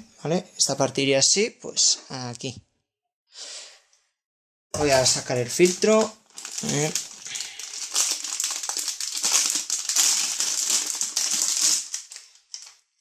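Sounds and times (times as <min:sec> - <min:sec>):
plastic packaging crinkling: 0:04.8 - 0:12.8.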